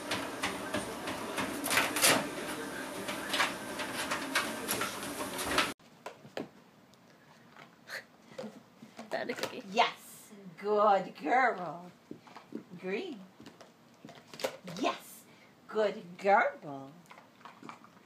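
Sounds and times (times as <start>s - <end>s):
treadmill motor hum and belt: 0.0s - 5.8s.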